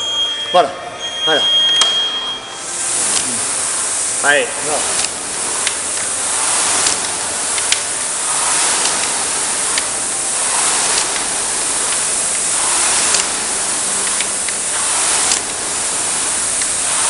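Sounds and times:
rowing machine flywheel whooshing: 1.0 - 17.0.

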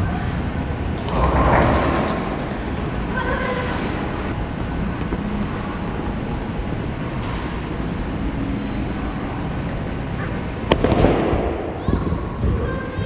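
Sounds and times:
lane machinery rumble: 0.0 - 13.0
bowling balls rolling: 0.7 - 4.4.

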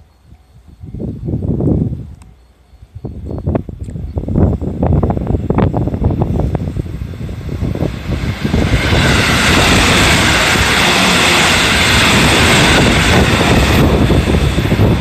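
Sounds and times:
train passing at speed: 0.0 - 15.0.

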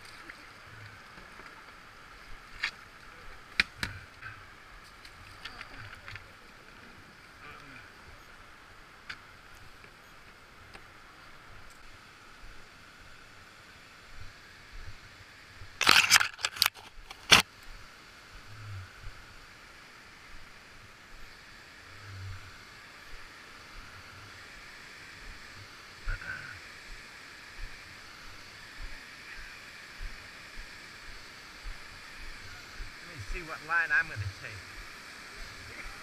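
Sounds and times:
distant river rapids: 17.4 - 36.0.

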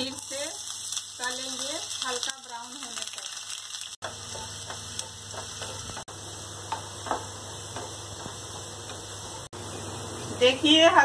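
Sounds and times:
onions sizzling in a pan: 0.0 - 11.0
wooden spatula tapping and scraping: 4.0 - 9.5.

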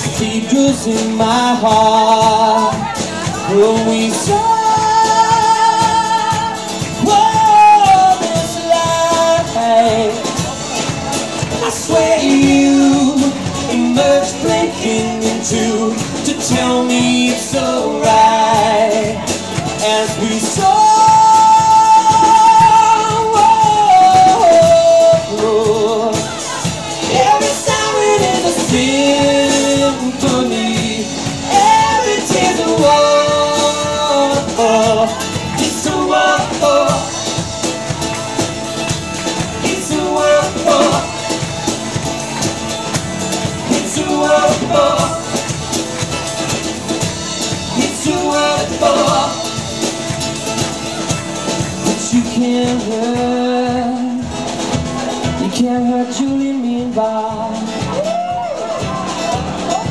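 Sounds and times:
man singing: 0.0 - 37.8, 39.2 - 41.9, 42.8 - 50.2, 51.6 - 58.1
drum kit: 0.0 - 59.9
strummed acoustic guitar: 0.0 - 59.9.

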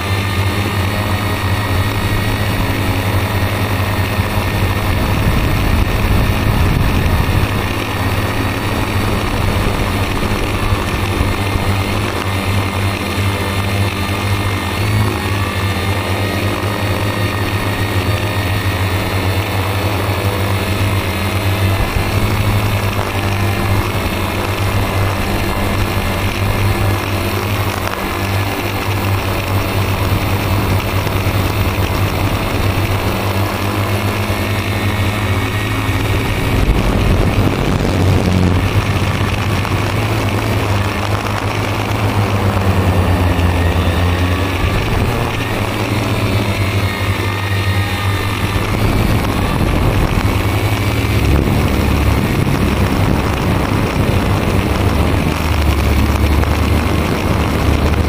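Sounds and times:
drone motors and propellers humming: 0.0 - 58.0.

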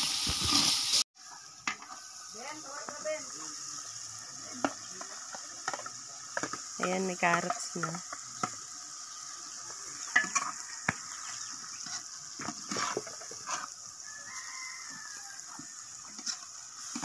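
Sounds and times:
sizzling in pot: 0.0 - 17.0
metal ladle scraping pot: 10.0 - 13.9, 16.0 - 17.0
rooster crowing: 10.3 - 11.7, 13.9 - 16.0.

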